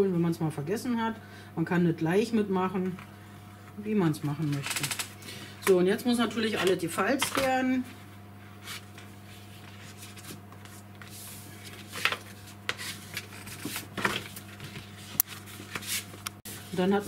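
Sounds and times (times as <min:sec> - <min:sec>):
steady low hum: 0:00.0 - 0:17.0
paper rustling on a cutting mat: 0:08.5 - 0:16.9.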